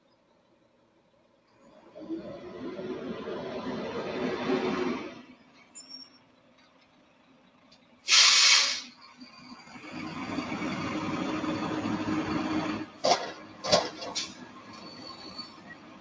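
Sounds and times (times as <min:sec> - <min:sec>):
loud air hiss: 0:08.1 - 0:09.0
trash cart banging: 0:12.9 - 0:14.5.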